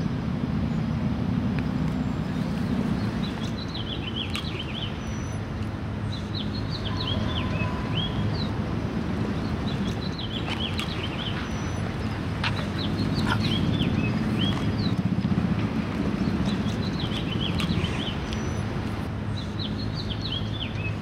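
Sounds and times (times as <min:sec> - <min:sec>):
low outdoor rumble: 0:00.0 - 0:21.0
small birds chirping: 0:01.6 - 0:21.0.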